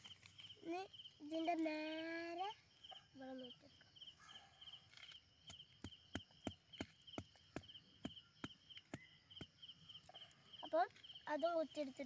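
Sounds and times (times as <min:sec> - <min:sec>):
wooden stick knocking into soil: 0:05.4 - 0:09.7.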